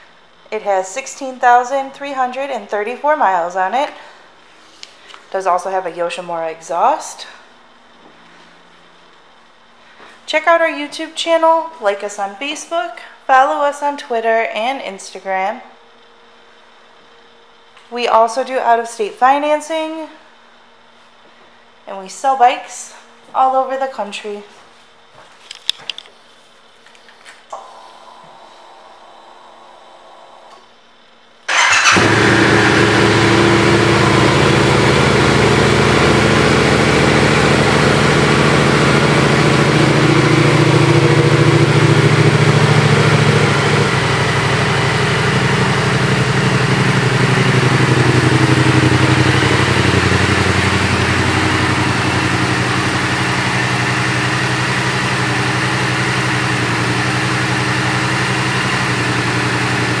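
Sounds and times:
motorcycle engine starting and idling: 31.5 - 60.0.

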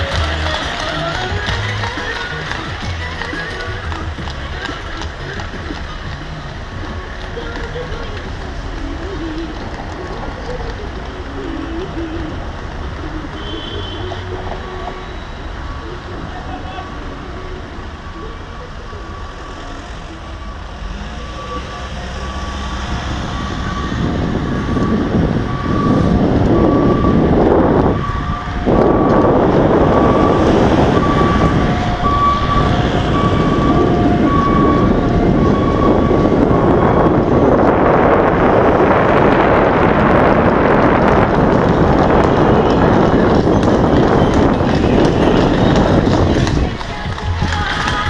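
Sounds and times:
city traffic: 0.0 - 48.0
wind rushing on microphone: 21.0 - 48.0.

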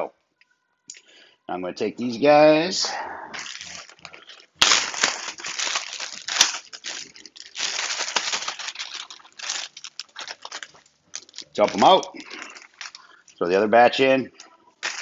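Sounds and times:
plastic bag crinkling: 3.4 - 13.4, 14.8 - 15.0.

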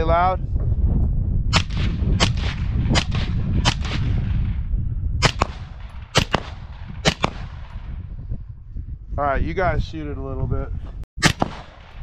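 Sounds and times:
steady low rumble: 0.4 - 10.6
suppressed rifle shots: 5.2 - 7.9, 11.2 - 12.0.

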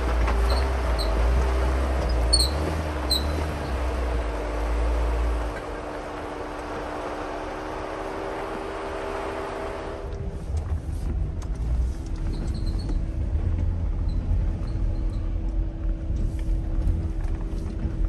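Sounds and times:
vehicle engine hum: 0.0 - 18.0
low rumble: 9.9 - 18.0.

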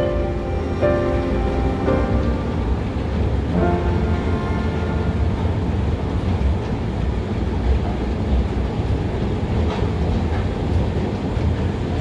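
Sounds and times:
escalator rumbling: 0.0 - 12.0.

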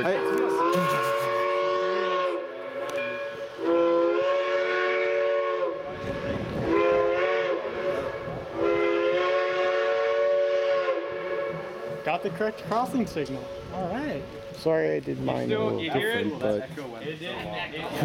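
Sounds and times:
chime steam whistle blasts: 0.0 - 12.0.

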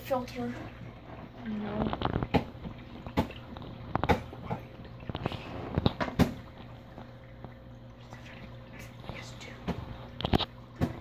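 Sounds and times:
aquarium filter humming: 0.0 - 11.0
sharp knocks and clicks: 1.9 - 4.7.

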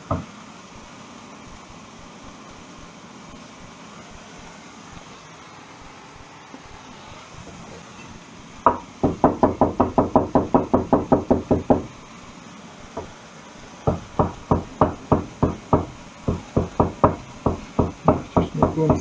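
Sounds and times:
cleaver chopping on wooden board: 13.9 - 19.0.

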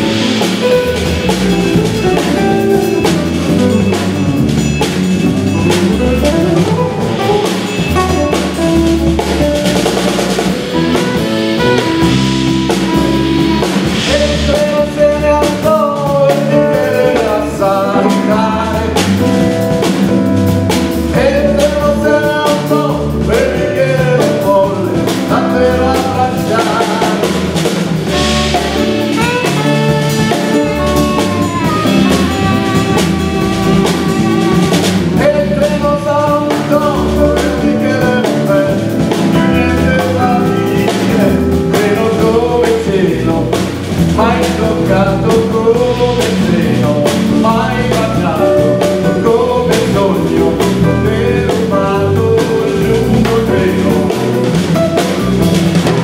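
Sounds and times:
saxophone: 0.0 - 15.4, 24.9 - 42.0
man singing lead: 0.0 - 20.0, 21.0 - 56.0
live rock band playing: 0.0 - 56.0.

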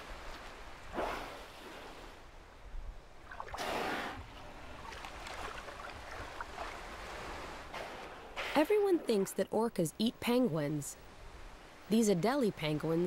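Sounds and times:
whale blowing: 0.9 - 2.2, 3.5 - 4.4
water lapping at ice edge: 3.2 - 9.2.

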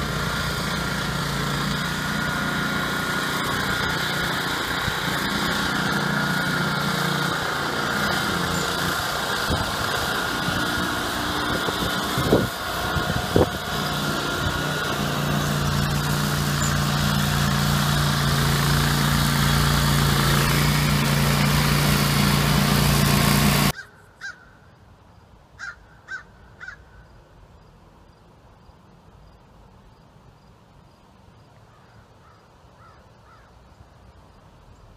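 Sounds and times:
brush cutter engine running: 0.0 - 23.8
crow cawing: 23.8 - 24.6, 25.6 - 27.1, 31.7 - 33.6.

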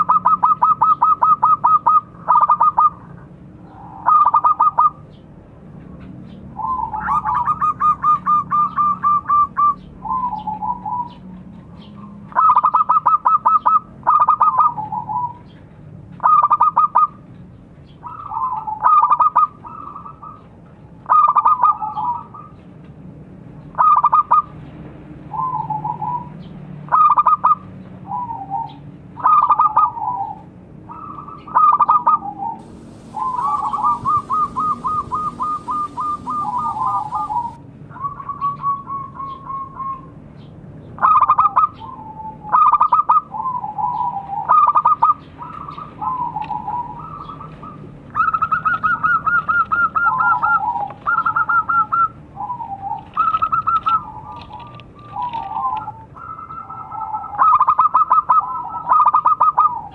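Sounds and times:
doves cooing: 0.0 - 5.1, 6.6 - 15.6, 16.2 - 17.2, 26.9 - 40.0, 41.0 - 59.9.

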